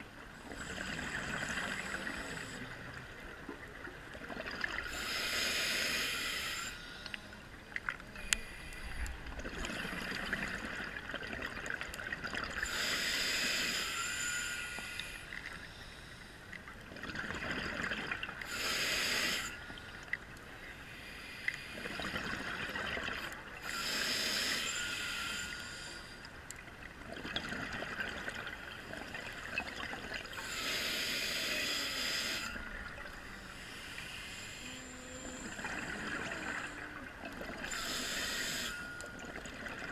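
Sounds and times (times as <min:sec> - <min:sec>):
regulator hiss: 0:04.9 - 0:07.1, 0:18.5 - 0:19.6, 0:23.6 - 0:26.2, 0:30.3 - 0:32.6, 0:37.7 - 0:38.9.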